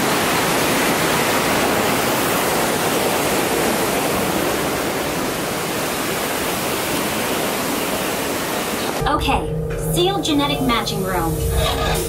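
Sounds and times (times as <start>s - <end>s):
waterfall rushing: 0.0s - 9.0s.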